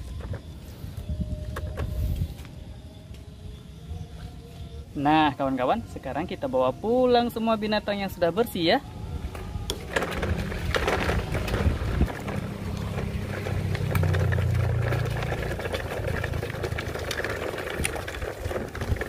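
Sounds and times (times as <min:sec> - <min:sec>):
toy truck wheels rumbling on gravel: 0:00.0 - 0:02.3, 0:09.3 - 0:19.0
stones crunching: 0:09.7 - 0:19.0.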